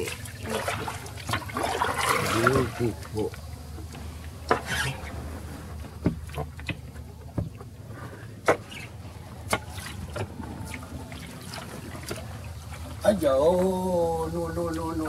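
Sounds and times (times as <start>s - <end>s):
steady low rumble: 0.0s - 15.0s
paddle knocks and taps: 5.8s - 7.7s.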